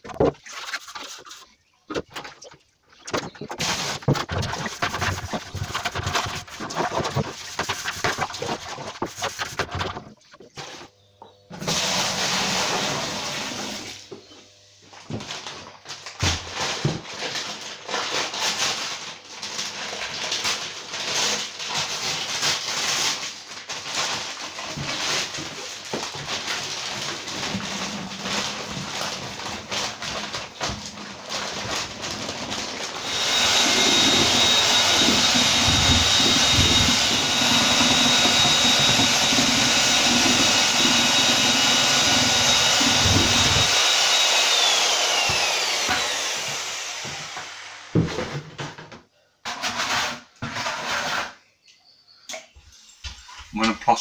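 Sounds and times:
water sloshing in a plastic bucket: 0.0 - 10.9
electric paddle mixer whining: 11.6 - 14.6, 24.8 - 48.2.

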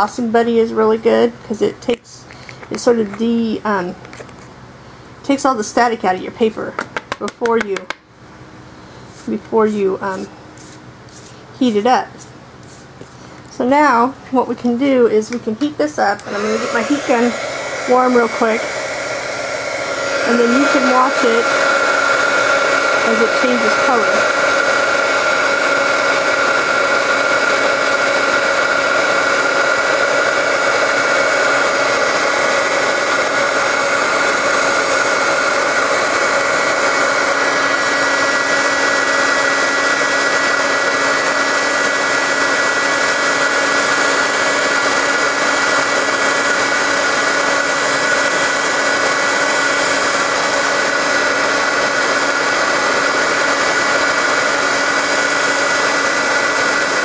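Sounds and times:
heat gun blowing hot air: 9.0 - 13.6, 16.0 - 57.0.

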